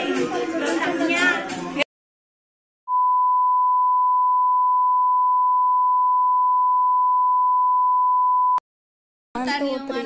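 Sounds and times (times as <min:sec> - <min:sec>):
electronic censor beep tone: 0:02.9 - 0:08.6.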